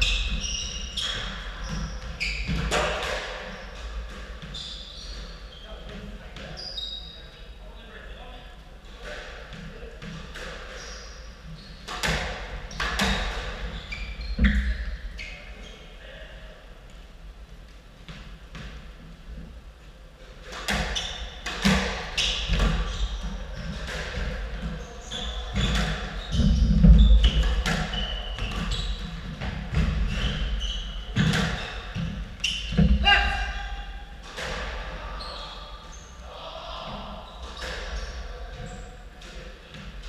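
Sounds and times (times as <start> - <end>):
squash ball hitting rackets and walls: 0.0 - 6.6, 9.0 - 11.2, 11.8 - 15.2, 20.4 - 33.5, 34.1 - 35.0
shoes squeaking on wooden floor: 0.0 - 7.2, 12.7 - 15.8, 20.6 - 33.6.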